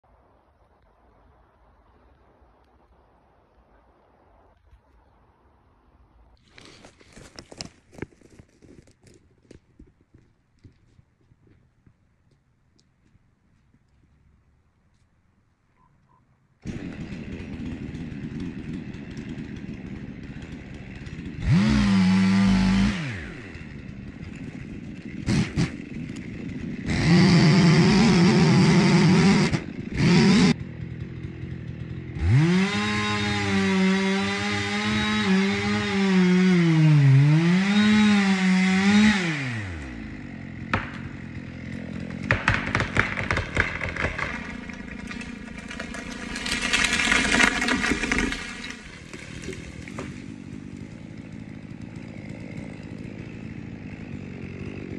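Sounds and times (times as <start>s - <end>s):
chainsaw cutting wood: 6.4s - 10.8s, 16.6s - 54.9s
tree trunk cracking: 6.4s - 11.6s, 16.6s - 30.1s, 32.2s - 54.9s.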